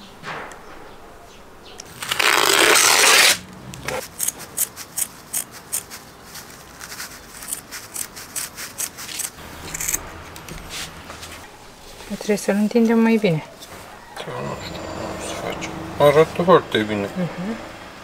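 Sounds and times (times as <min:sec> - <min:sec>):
scissors snipping burlap: 0:01.8 - 0:10.7
loud scratchy rub: 0:01.9 - 0:12.5.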